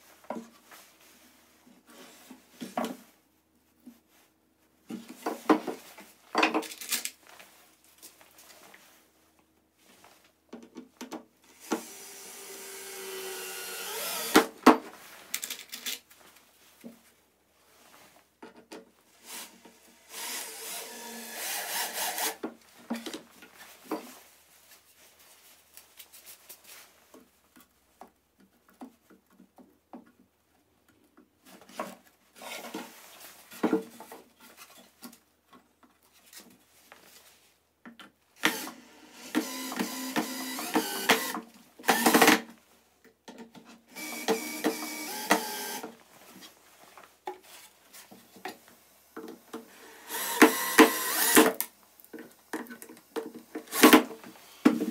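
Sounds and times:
cordless drill driving screws: 11.6 - 14.5, 19.3 - 22.4, 38.4 - 42.4, 43.9 - 46.0, 49.9 - 51.7, 53.7 - 54.0.

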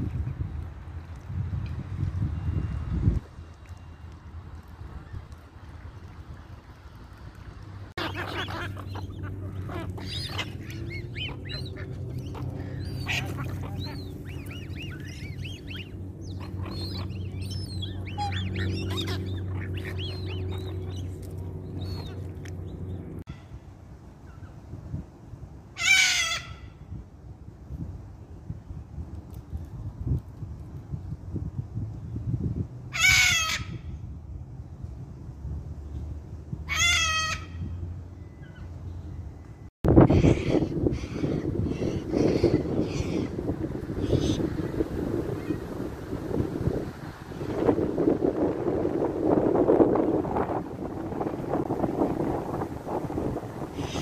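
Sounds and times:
low steady background rumble: 0.0 - 54.0
waterbirds calling: 3.4 - 23.6, 36.6 - 54.0
cockatoo calling: 8.0 - 21.0, 53.8 - 54.0.

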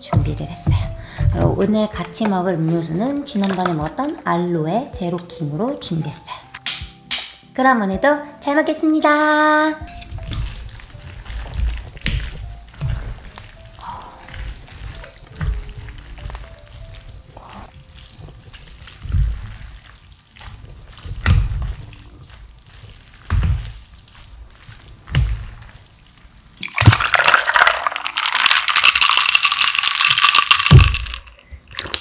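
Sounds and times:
chopsticks mixing sticky noodles: 0.0 - 4.5, 9.8 - 26.4
drink pouring into a glass: 26.6 - 32.0.

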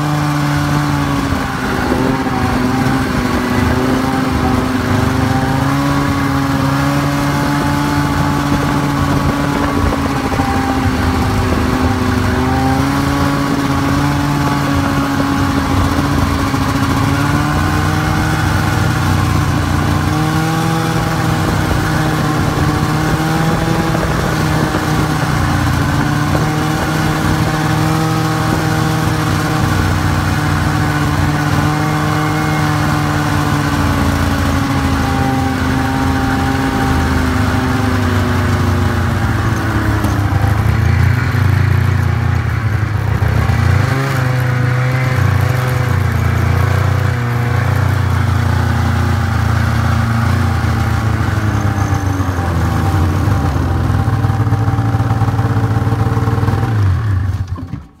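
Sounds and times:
snowmobile engine running: 0.0 - 58.0.

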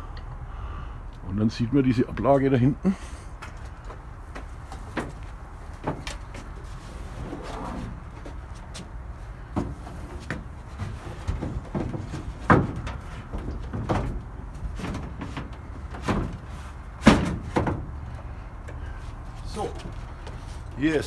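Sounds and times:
wooden knocks and thumps: 3.4 - 6.6, 8.2 - 18.8.

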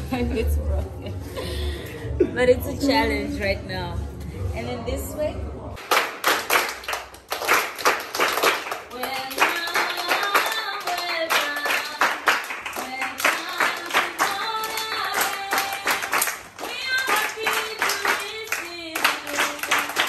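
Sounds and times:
children clapping in rhythm: 5.8 - 20.0.

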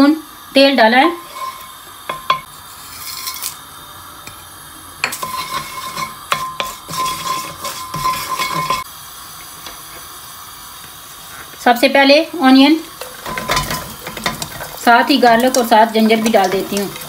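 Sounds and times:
wooden spoon knocking on pan: 2.1 - 2.5, 5.0 - 8.8.

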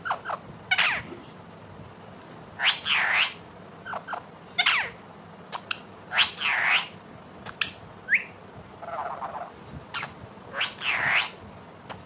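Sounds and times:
parakeet squawking calls: 0.0 - 1.1, 2.6 - 5.0, 5.6 - 11.4
parakeet warbling chatter: 0.0 - 1.1, 2.6 - 11.4.

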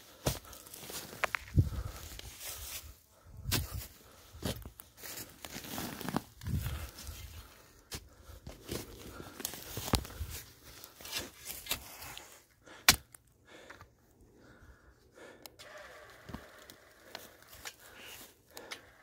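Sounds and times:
footsteps in dry grass and leaves: 0.0 - 12.6.

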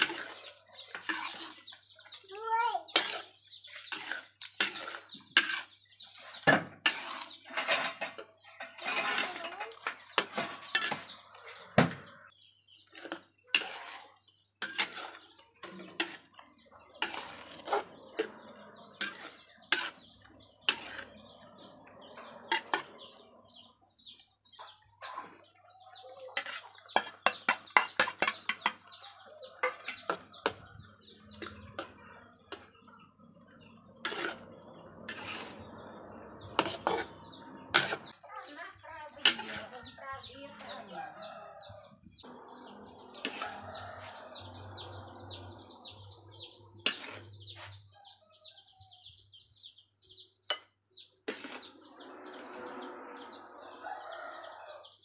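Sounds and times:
metal spatula scraping a wok: 0.0 - 2.2, 2.9 - 11.6, 12.8 - 23.3, 26.4 - 40.8, 42.6 - 47.9, 51.2 - 53.8.

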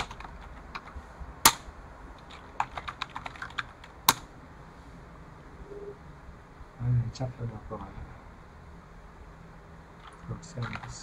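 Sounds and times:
computer keyboard typing: 0.0 - 1.6, 2.2 - 4.3, 10.0 - 11.0.

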